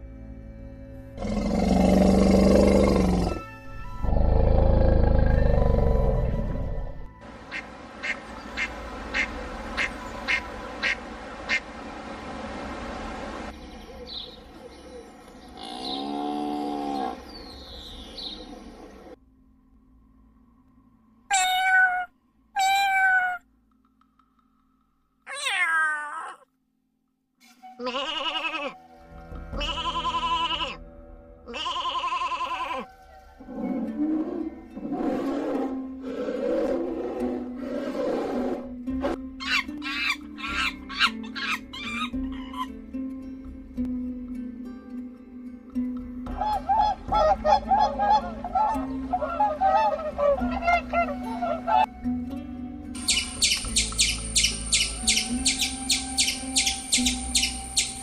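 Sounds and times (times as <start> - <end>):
bear growling: 1.2 - 3.4, 4.0 - 7.0
duck quacking: 7.5 - 11.6
cow mooing: 15.6 - 17.3
sheep bleating: 27.8 - 28.8, 29.5 - 30.8, 31.5 - 32.9.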